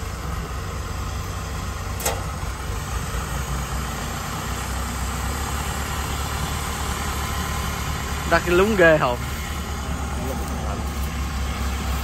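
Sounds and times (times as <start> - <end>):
diesel engine humming: 0.0 - 12.0
sharp click: 2.0 - 2.3.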